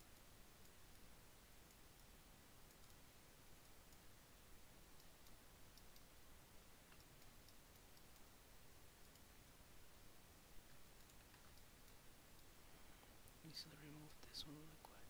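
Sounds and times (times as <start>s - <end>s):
mouse and keyboard clicking: 10.7s - 12.0s.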